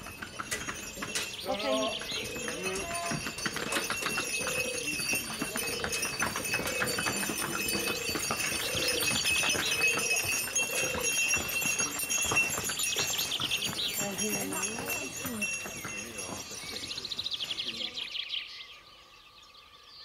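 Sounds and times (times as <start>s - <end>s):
hooves clopping on stone steps: 0.0s - 18.1s.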